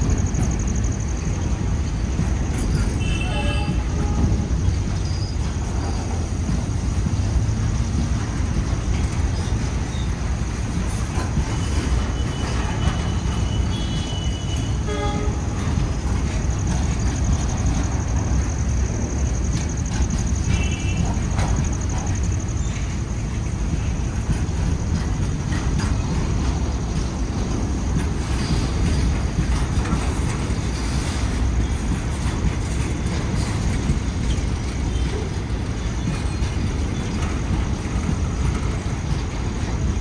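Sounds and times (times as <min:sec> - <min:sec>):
train wheels rumbling on rails: 0:00.0 - 0:40.0
wheels squealing: 0:00.0 - 0:40.0.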